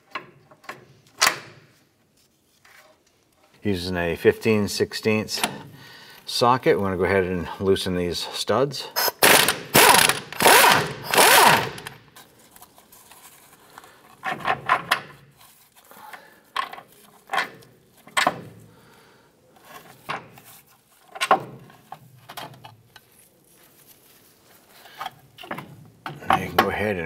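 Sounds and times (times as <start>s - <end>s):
power wrench bursts: 9.0s - 12.0s.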